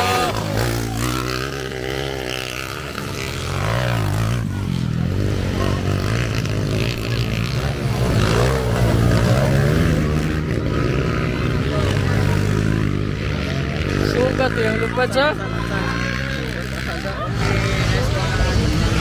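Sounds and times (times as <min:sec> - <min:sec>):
dirt bike engines revving: 0:00.0 - 0:19.0.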